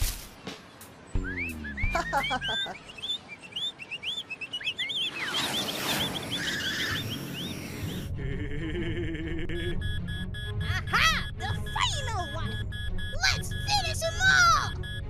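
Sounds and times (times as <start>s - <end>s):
cartoon bird-like chirps: 1.3s - 3.2s.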